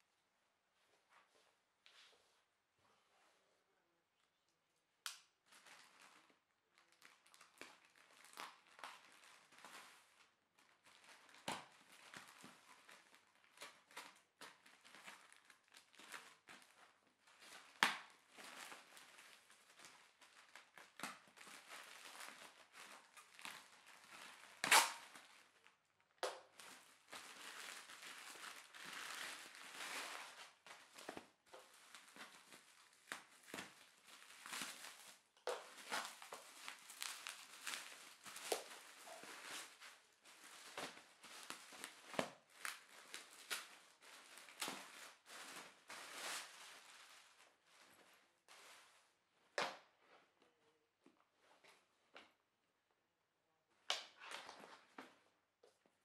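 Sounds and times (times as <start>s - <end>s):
bubble wrap crinkling: 5.2s - 49.2s
plastic bag crinkling: 5.4s - 25.7s, 26.4s - 48.9s
plastic tearing snaps: 24.5s - 25.3s.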